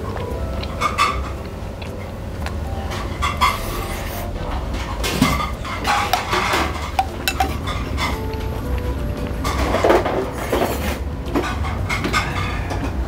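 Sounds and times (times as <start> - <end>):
light background music: 0.0 - 12.5
metal tongs clinking on ceramic bowl: 6.2 - 7.8.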